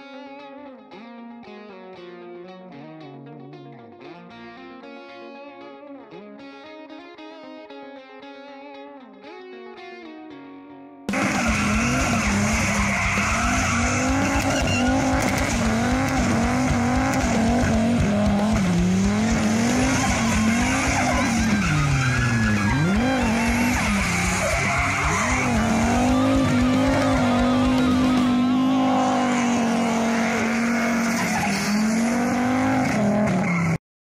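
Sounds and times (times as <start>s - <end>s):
tyre squeal: 11.1s - 16.9s, 19.6s - 33.8s
car engine revving hard: 11.1s - 33.8s.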